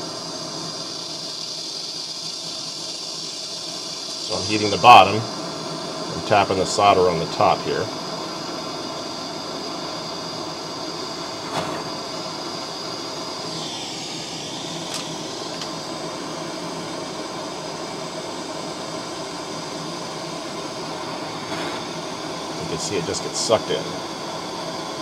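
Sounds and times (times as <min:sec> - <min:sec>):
gas torch hissing: 0:00.0 - 0:25.0.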